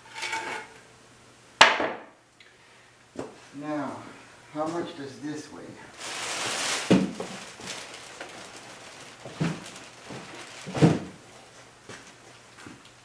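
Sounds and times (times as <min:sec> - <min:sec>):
plastic wrapping rustling: 0:05.9 - 0:12.8.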